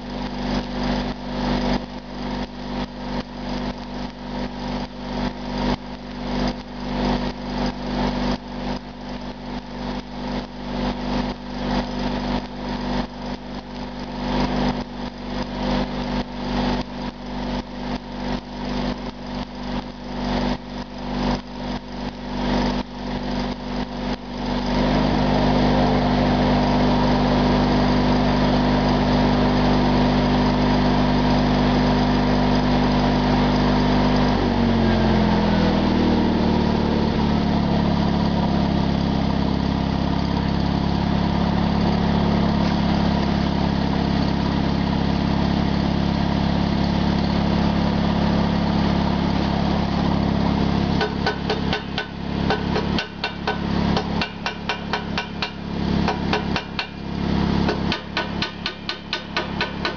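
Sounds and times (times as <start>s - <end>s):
small engine running: 0.0s - 59.9s
sharp metal taps: 51.0s - 57.0s, 57.7s - 59.9s.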